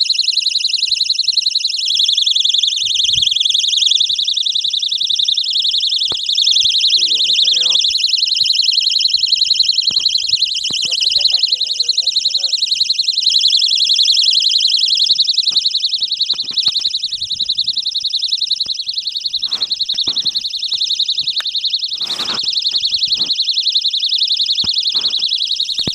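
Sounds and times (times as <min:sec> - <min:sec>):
soft clicks and rustles: 0:15.5 - 0:17.8, 0:18.6 - 0:23.4.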